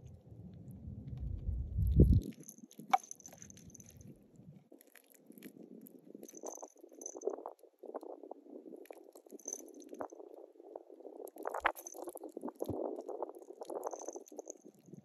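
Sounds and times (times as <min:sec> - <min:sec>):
low rumble: 0:00.0 - 0:02.2.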